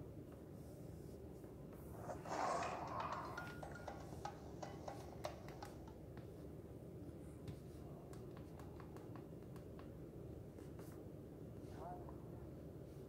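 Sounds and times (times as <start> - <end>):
tablet tapping clicks: 2.3 - 6.3.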